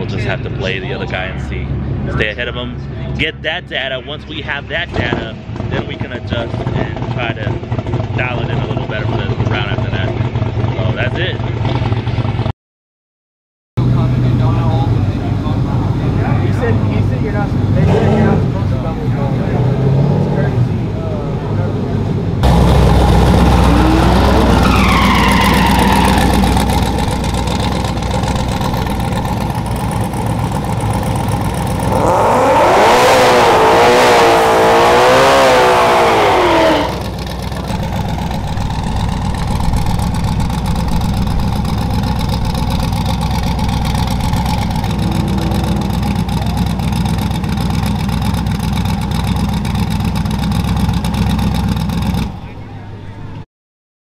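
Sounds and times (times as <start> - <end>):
turbocharged engine rumbling and revving: 0.0 - 12.5, 13.8 - 52.6.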